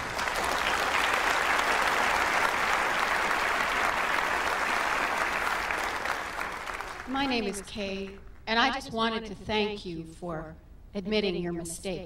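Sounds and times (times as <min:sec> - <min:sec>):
audience applauding: 0:00.0 - 0:07.7.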